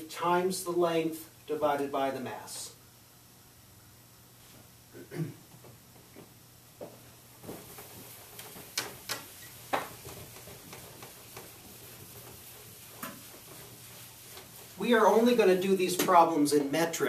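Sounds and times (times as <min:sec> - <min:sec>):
eraser rubbing chalkboard: 0:07.4 - 0:16.3
eraser tapping board: 0:08.3 - 0:14.8.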